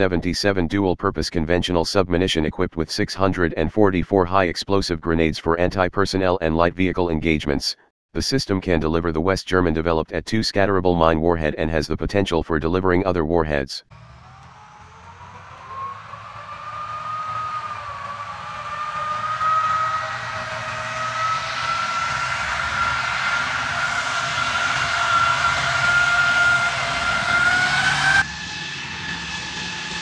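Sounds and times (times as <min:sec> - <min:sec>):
tracked vehicle whine and rumble: 0:13.9 - 0:30.0.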